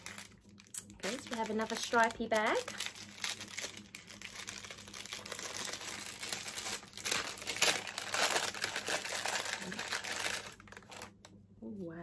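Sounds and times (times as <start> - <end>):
paper bag crinkling: 0.0 - 11.2.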